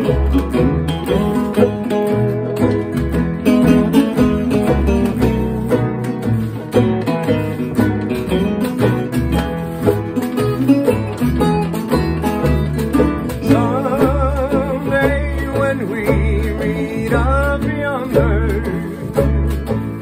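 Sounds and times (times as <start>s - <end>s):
picked banjo: 0.0s - 20.0s
stepping bass line: 0.0s - 20.0s
strummed acoustic guitars: 0.0s - 20.0s
washboard rhythm: 0.0s - 20.0s.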